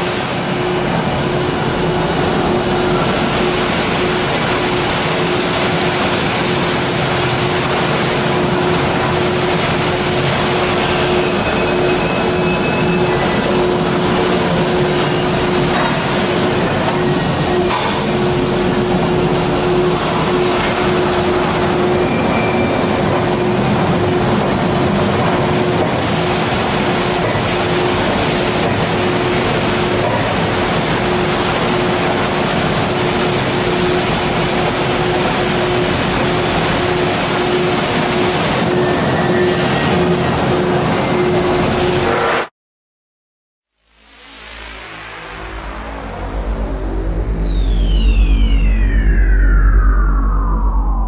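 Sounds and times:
steady tone cutting in and out: 44.0 - 51.0.

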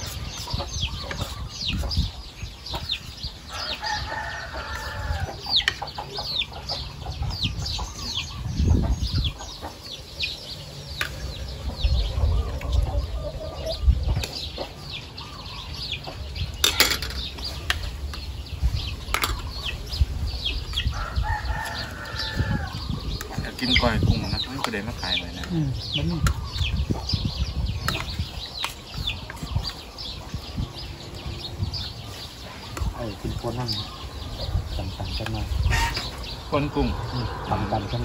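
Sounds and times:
chicks peeping: 0.0 - 38.0
hen clucking: 20.9 - 38.0.

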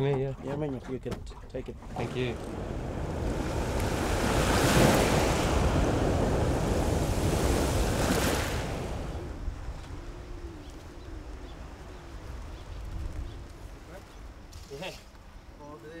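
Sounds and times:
choppy sea water rushing: 0.0 - 13.0
wind: 0.0 - 16.0.

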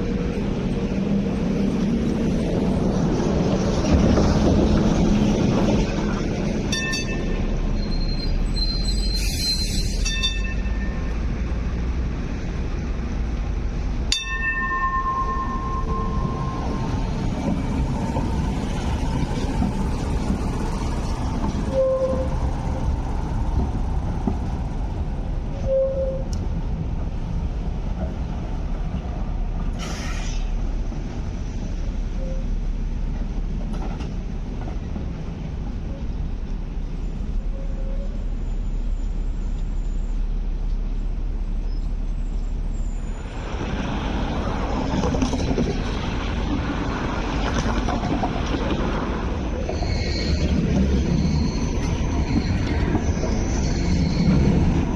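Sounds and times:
tram wheels rumbling on rail: 0.0 - 54.9
brief air hiss: 29.8 - 30.6.

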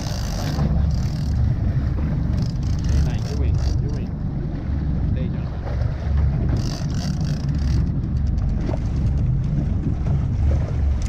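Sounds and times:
boat engine rumble: 0.0 - 11.0
wind buffeting microphone: 0.0 - 11.0.

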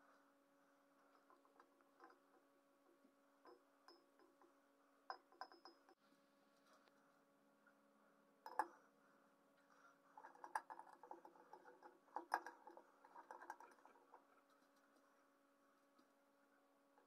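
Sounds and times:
light ticking rattles: 10.2 - 15.1.

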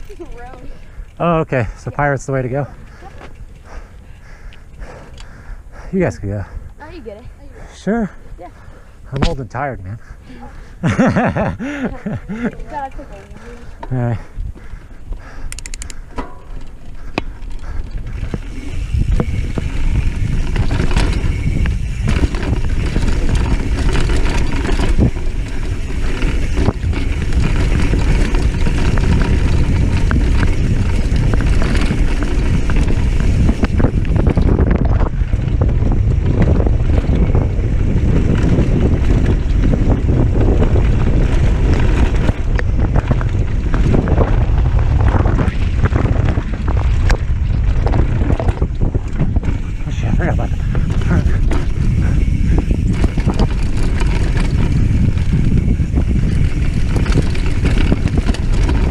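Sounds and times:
bike tyre noise on dirt: 0.0 - 58.9
wind rushing over microphone: 0.0 - 58.9
bike knocks and rattles: 15.6 - 58.9.

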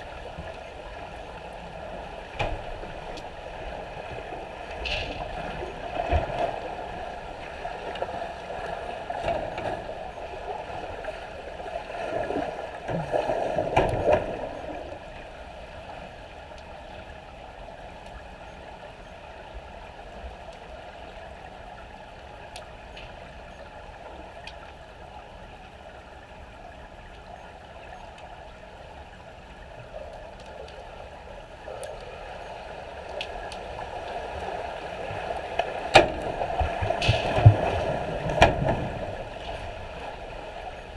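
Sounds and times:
muffled underwater swimming splashes: 27.5 - 40.9.

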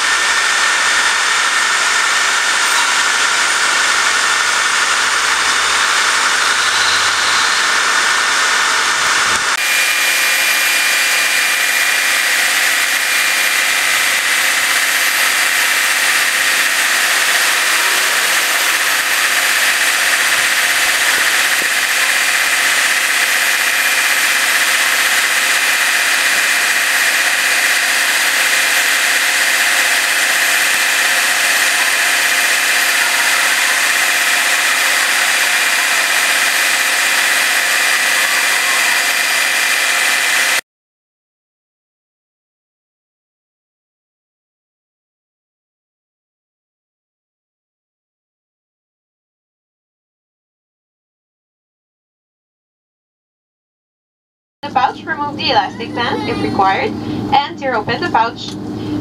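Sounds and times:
engine drone: 0.0 - 40.6, 54.6 - 59.0
thin high whine: 0.0 - 40.6, 54.6 - 59.0.

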